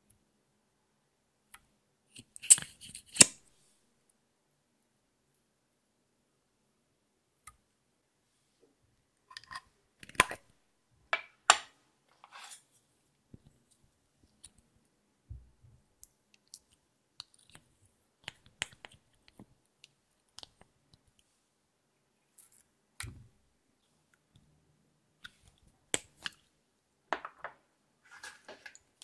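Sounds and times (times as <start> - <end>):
plastic containers being handled: 27.2 - 29.0
wooden stick scraping plastic pot: 28.0 - 28.8.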